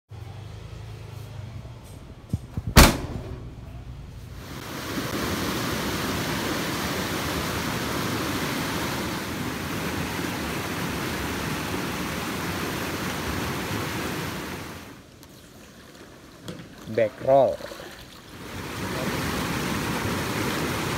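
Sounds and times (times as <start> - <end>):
sharp knock: 2.5 - 3.8
river rapids rushing: 4.6 - 15.0, 18.4 - 20.9.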